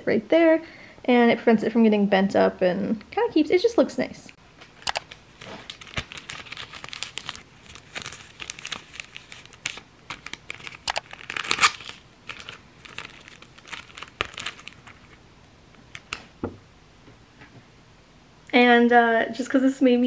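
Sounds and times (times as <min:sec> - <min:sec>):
plastic sleeve crinkling: 0:04.6 - 0:16.4.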